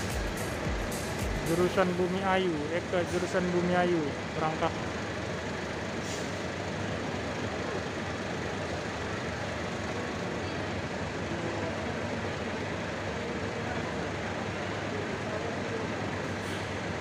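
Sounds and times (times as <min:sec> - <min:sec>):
terminal hum: 0:00.0 - 0:02.2
coach engine rumble: 0:00.0 - 0:17.0.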